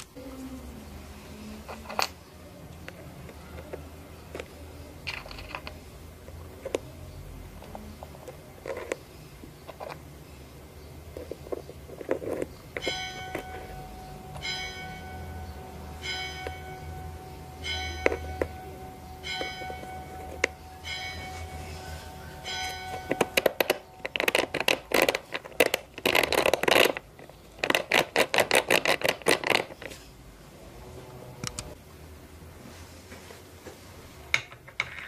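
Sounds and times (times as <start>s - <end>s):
machine hum: 10.4s - 25.3s
ringing metallic strike: 12.8s - 24.1s.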